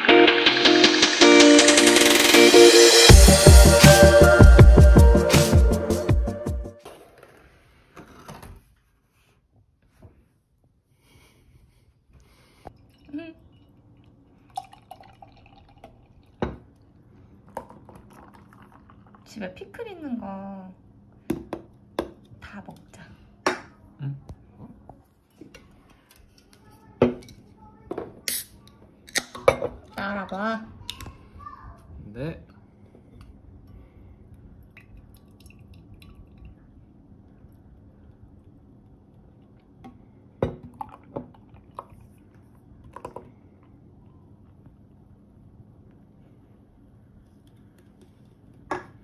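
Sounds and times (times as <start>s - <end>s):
beer pouring into glass: 12.8s - 19.3s, 34.8s - 36.6s, 40.5s - 42.2s.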